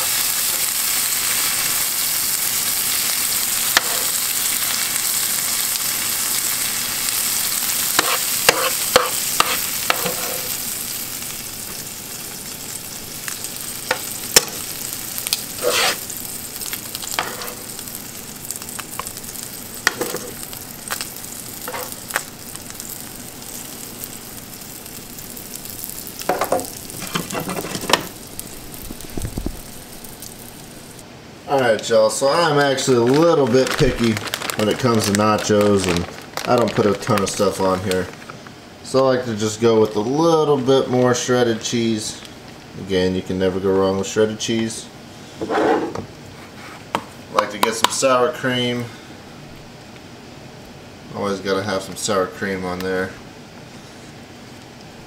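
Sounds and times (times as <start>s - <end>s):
fish sizzling in a skillet: 0.0s - 31.0s
metal tongs scraping a pan: 3.8s - 4.2s, 8.0s - 10.6s, 15.6s - 16.1s, 17.1s - 17.7s, 27.0s - 28.0s.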